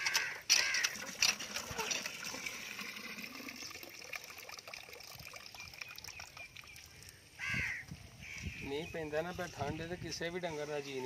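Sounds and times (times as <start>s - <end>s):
water splashing into a trough: 0.0s - 7.2s.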